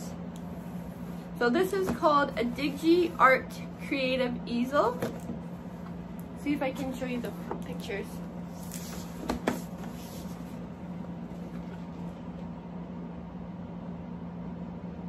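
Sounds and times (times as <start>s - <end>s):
low electrical hum: 0.0s - 15.0s.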